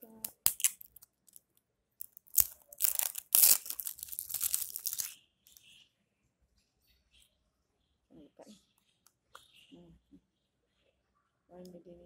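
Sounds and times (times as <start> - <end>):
plastic packaging tearing: 0.0 - 1.4, 2.0 - 5.2.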